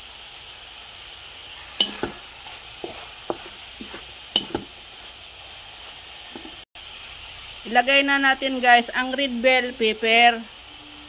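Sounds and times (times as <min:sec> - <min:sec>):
steady sizzle: 0:00.0 - 0:11.0
spatula scraping and knocking pan: 0:01.6 - 0:05.2, 0:06.3 - 0:06.6.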